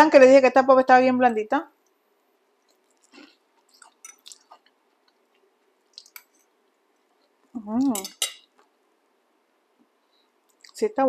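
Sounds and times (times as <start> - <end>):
person chewing food: 2.5 - 7.5, 9.8 - 10.8
wet mouth clicks and smacks: 2.7 - 5.2, 5.9 - 6.3.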